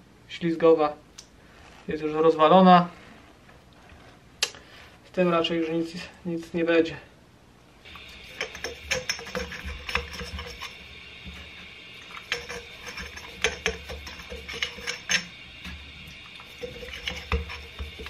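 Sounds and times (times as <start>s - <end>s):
tool scraping inside metal shock: 7.9s - 18.0s.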